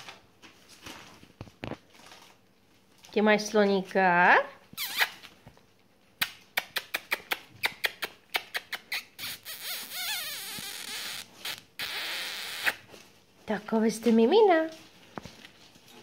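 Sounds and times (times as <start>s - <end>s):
newspaper crackling and rustling: 0.0s - 4.0s
puppy high squeaks: 4.7s - 5.3s, 6.6s - 12.9s.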